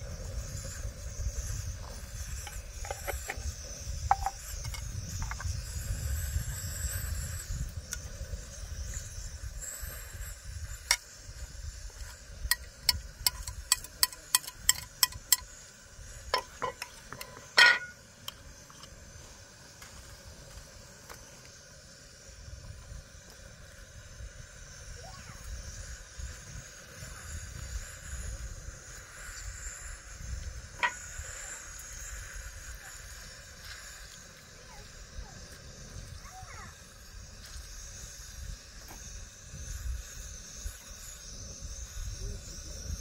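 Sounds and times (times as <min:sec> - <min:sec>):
wind rumble on microphone: 0:00.0 - 0:14.0, 0:34.7 - 0:43.0.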